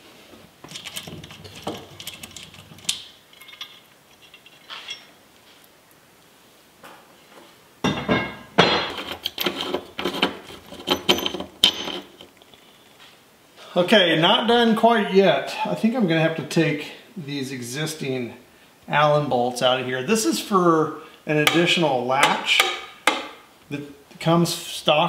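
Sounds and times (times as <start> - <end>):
hand tools clicking and clinking: 0.6 - 5.2, 8.6 - 12.8.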